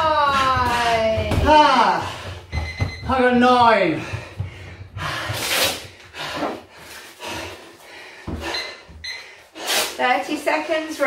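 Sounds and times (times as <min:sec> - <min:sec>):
man breathing hard: 0:04.0 - 0:09.9.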